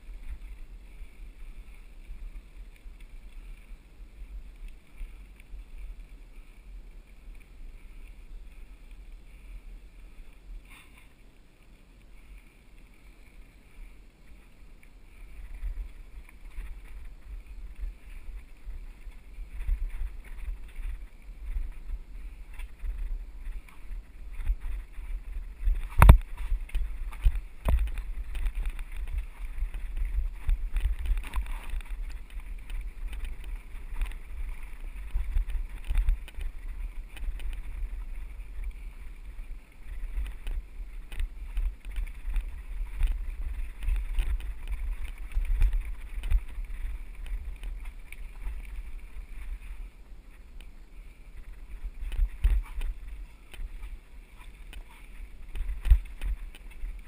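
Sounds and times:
wind buffeting microphone: 15.1 - 57.0.

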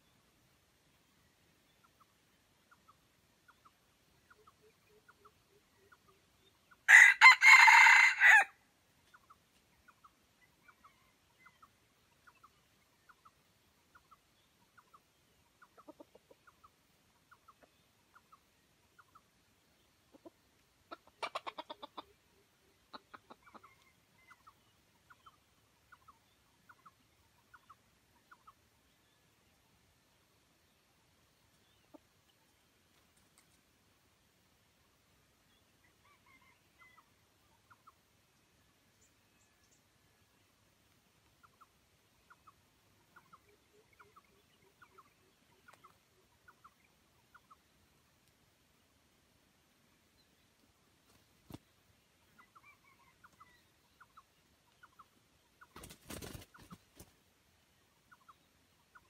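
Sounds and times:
rooster crowing: 6.9 - 8.6
chicken clucking: 9.0 - 18.4, 20.0 - 28.6.

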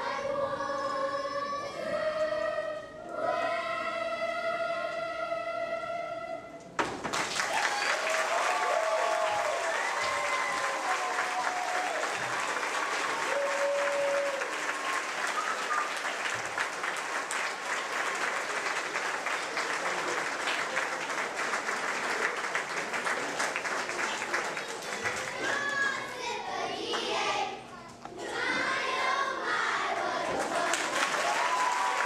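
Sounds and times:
audience applauding: 7.0 - 25.8, 30.4 - 32.0.

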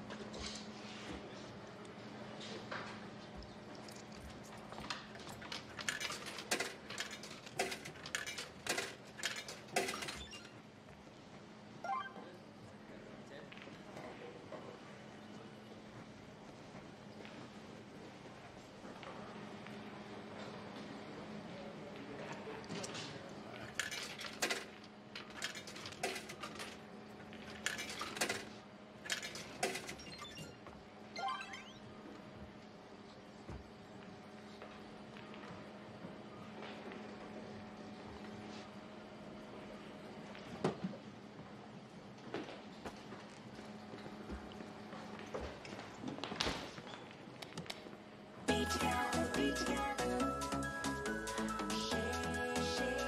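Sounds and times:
coins clinking into slot: 5.8 - 10.3, 23.7 - 26.8, 27.5 - 28.5, 29.1 - 30.2
rising electronic jingle: 31.2 - 31.9.

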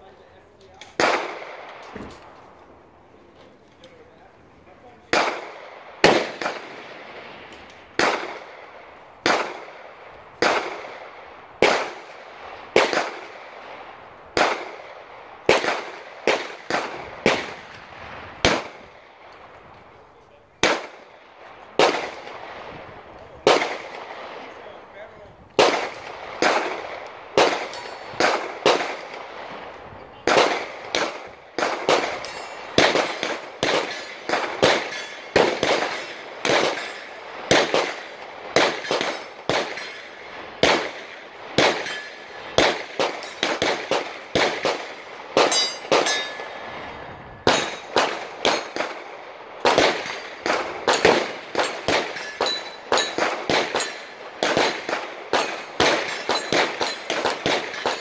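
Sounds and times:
gunshots with echo: 0.9 - 2.2, 5.1 - 7.2, 7.9 - 8.5, 9.2 - 9.8, 15.4 - 17.7, 21.8 - 22.4, 23.4 - 24.8, 25.6 - 29.4, 30.2 - 58.0.

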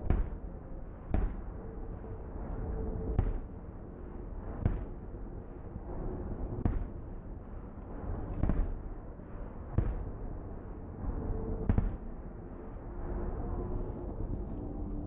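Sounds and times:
steady low noise: 0.0 - 15.0.

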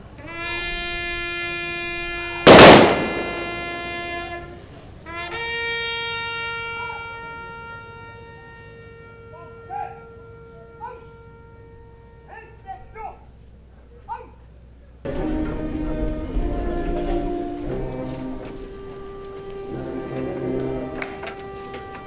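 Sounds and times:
solo brass horn call: 0.0 - 13.6, 15.1 - 22.0
gun volley echoing: 2.5 - 3.8.

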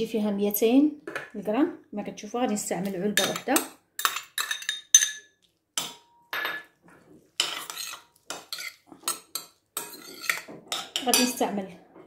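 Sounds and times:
glass bowls clinking: 3.2 - 6.8
spoon scraping glass bowl: 6.4 - 11.4.

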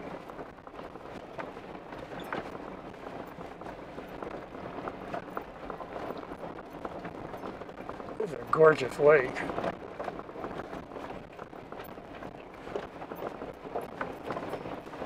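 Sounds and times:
small knocks and rattles: 0.0 - 15.0
tyres crunching on gravel: 4.8 - 11.8.

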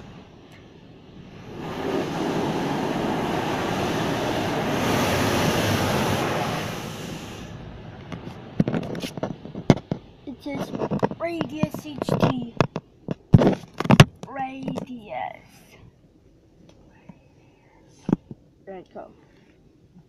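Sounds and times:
car wash brushes and water swishing: 1.2 - 9.5.

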